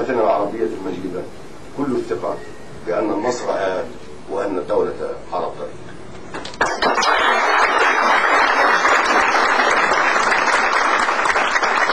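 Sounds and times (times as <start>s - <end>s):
audience applauding: 6.4s - 11.9s.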